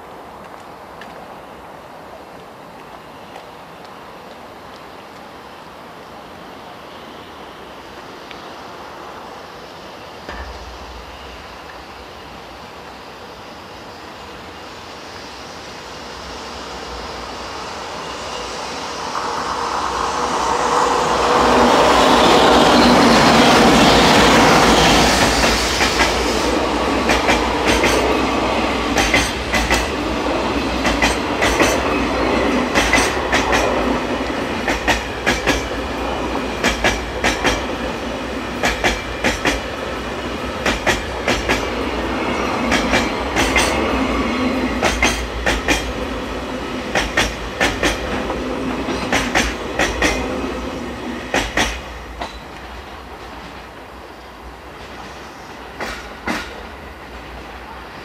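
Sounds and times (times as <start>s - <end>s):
electric locomotive rumbling past: 0.0s - 58.0s
wheels clacking over rail joints: 22.2s - 50.5s, 51.2s - 53.7s.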